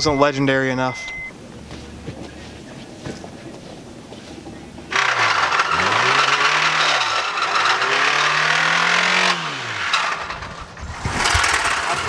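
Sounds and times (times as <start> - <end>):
car engine revving: 4.5 - 12.0.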